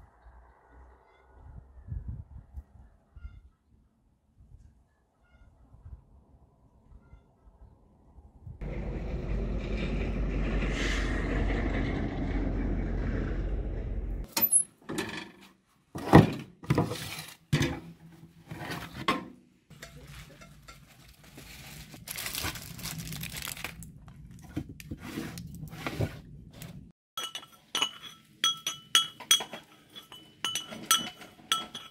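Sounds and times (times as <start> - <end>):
wind rumbling on microphone: 1.3 - 4.8, 5.6 - 14.3.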